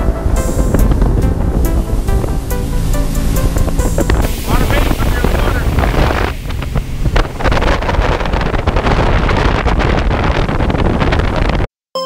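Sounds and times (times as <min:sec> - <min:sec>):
water rushing along a hull: 0:00.0 - 0:11.6
wind buffeting microphone: 0:00.0 - 0:11.7
water slaps and splashes: 0:02.5 - 0:09.4.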